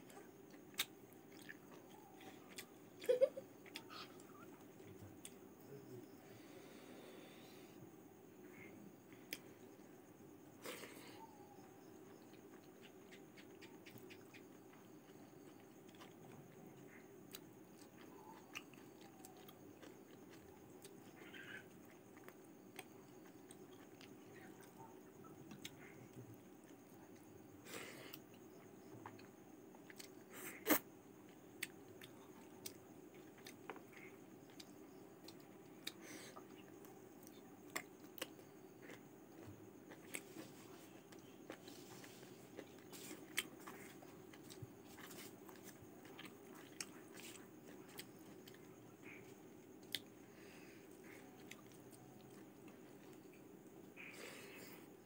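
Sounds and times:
person chewing food: 0.0s - 5.5s, 12.0s - 24.8s, 28.1s - 54.4s
faint steady hum: 0.0s - 55.0s
mouth clicks and smacks: 12.6s - 14.5s.

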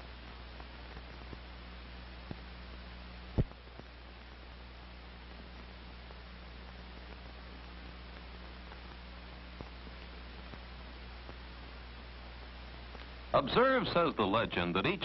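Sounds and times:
film soundtrack hiss: 0.0s - 15.0s
low mains hum: 0.0s - 15.0s
faint clicks: 12.9s - 13.2s.

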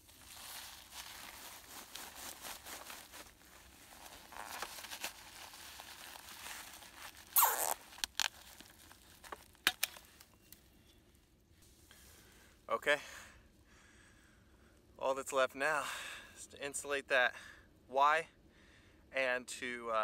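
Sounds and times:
foil insulation crinkling: 0.0s - 10.6s
cable tie zipped tight: 7.2s - 8.3s.

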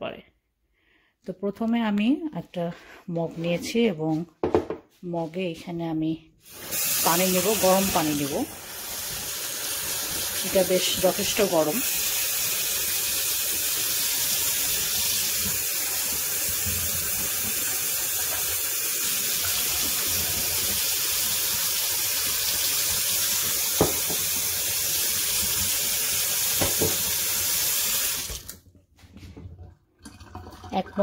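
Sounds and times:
tap water running into sink: 6.5s - 28.6s, 30.0s - 31.0s.

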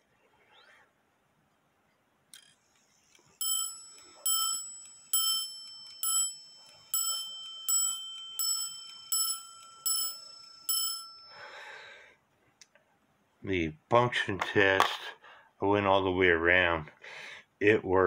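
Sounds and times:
clock striking a bell: 3.4s - 11.4s.

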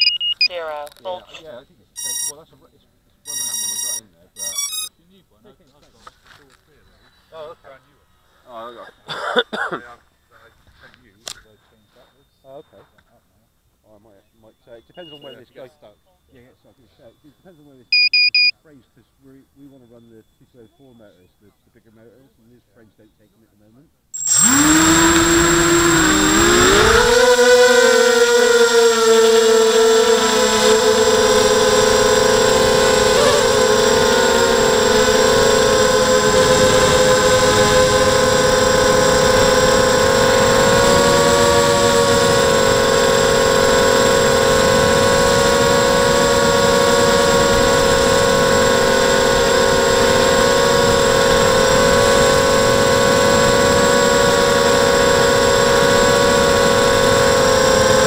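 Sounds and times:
quadcopter motors whining: 1.3s - 2.7s, 3.3s - 4.9s, 14.6s - 15.7s, 16.4s - 18.5s, 24.2s - 58.0s.

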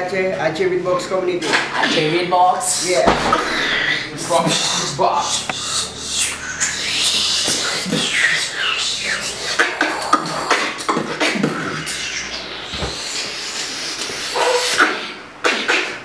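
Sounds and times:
beatboxing: 5.3s - 16.0s.

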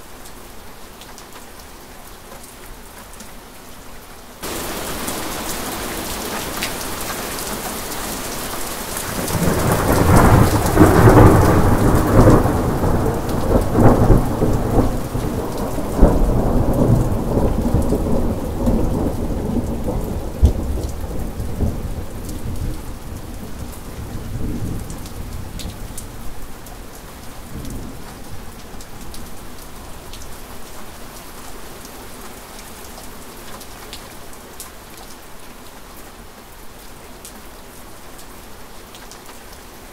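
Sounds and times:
steady rain: 0.0s - 39.9s
thunder rolling: 9.1s - 22.8s.

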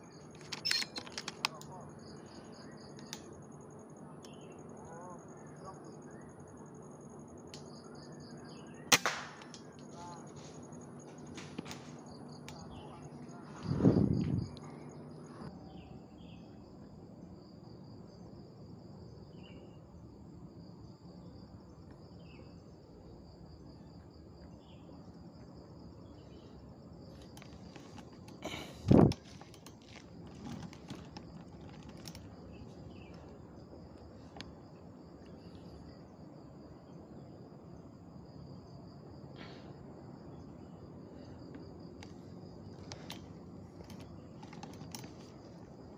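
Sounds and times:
insects chirring: 0.0s - 45.9s
sharp loud crack: 8.9s - 9.4s.

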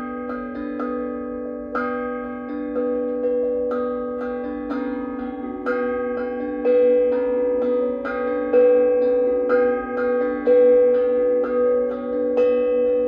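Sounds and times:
steel tongue drums played with mallets: 0.0s - 13.0s.

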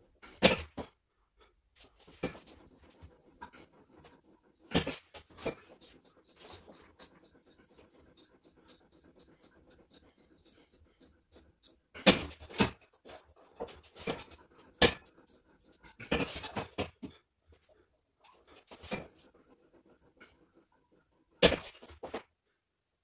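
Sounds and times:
faint scraping and rubbing: 1.8s - 22.3s.

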